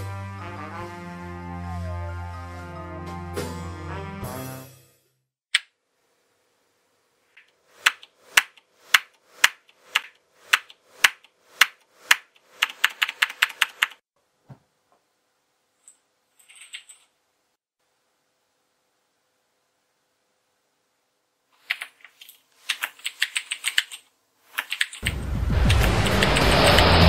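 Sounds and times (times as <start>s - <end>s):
computer keyboard typing: 9.5s - 14.0s, 21.6s - 25.1s.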